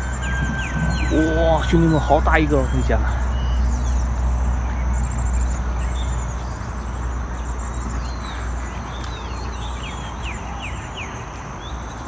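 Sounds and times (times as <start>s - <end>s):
wind rumble on microphone: 0.0s - 2.5s
short bird chirps: 0.0s - 4.0s
high insect buzz: 0.0s - 12.0s.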